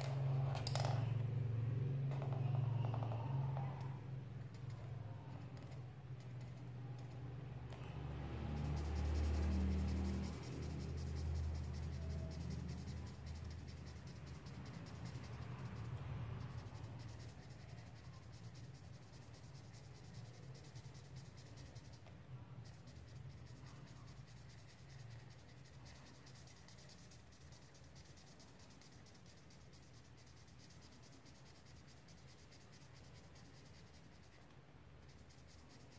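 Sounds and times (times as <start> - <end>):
marker scribbling on paper: 7.9 - 35.9.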